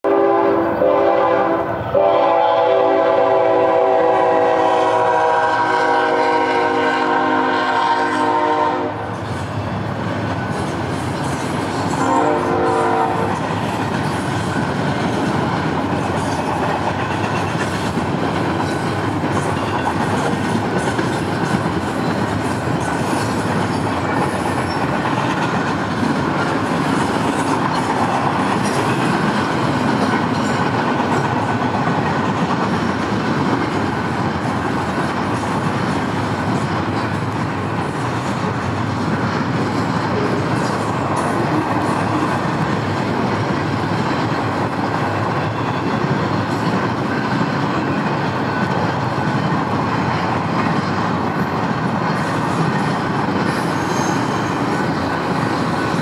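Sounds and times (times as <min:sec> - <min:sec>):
locomotive horn blasts: 0:00.0 - 0:09.1, 0:12.0 - 0:13.4
freight train wheels rumbling: 0:00.0 - 0:56.0.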